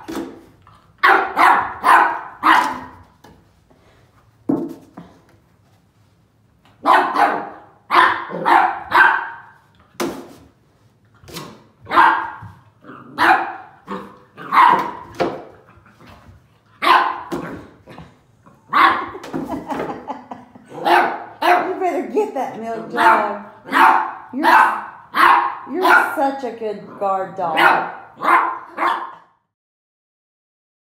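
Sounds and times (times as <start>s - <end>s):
puppy barking: 1.0s - 3.0s, 6.8s - 9.6s, 11.8s - 15.2s, 16.8s - 17.4s, 18.7s - 19.2s, 20.7s - 21.8s, 22.8s - 26.3s, 27.5s - 29.4s.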